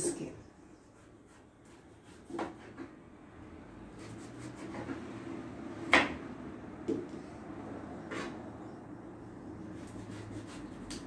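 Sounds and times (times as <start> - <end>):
sharp knock on cutting board: 5.9 - 6.2
knife scraping pumpkin skin: 9.8 - 11.0.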